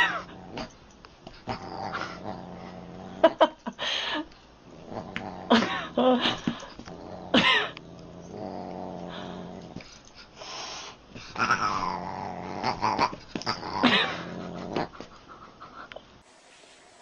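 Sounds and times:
low growling: 0:00.0 - 0:00.8, 0:01.4 - 0:03.4, 0:04.6 - 0:09.8, 0:11.3 - 0:15.0.

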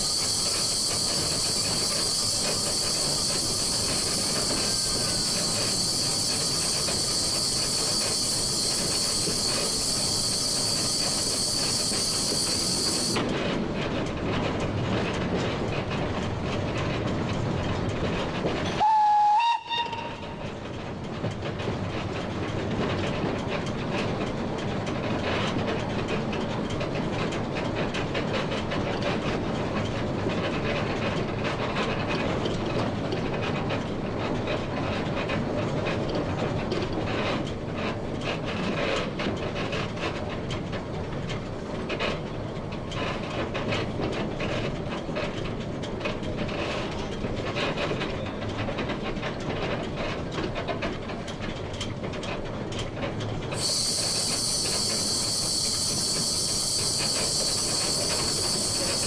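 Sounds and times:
steam locomotive hiss: 0:00.0 - 0:13.3, 0:18.8 - 0:20.4, 0:53.4 - 0:59.0
wheels clicking over rail joints: 0:00.0 - 0:59.0
steam whistle blast: 0:18.8 - 0:20.4, 0:53.6 - 0:59.0.

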